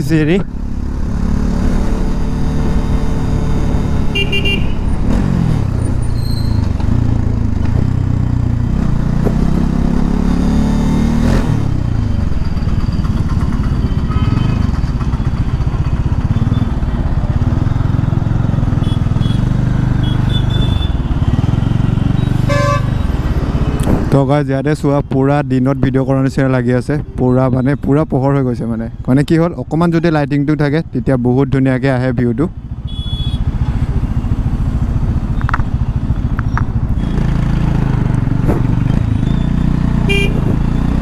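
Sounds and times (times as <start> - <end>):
motorcycle engine running: 0.2 - 23.8, 32.5 - 41.0
vehicle horn toots: 4.1 - 4.9, 14.0 - 14.7, 18.8 - 21.1, 22.2 - 23.1, 32.8 - 33.5, 40.1 - 40.5.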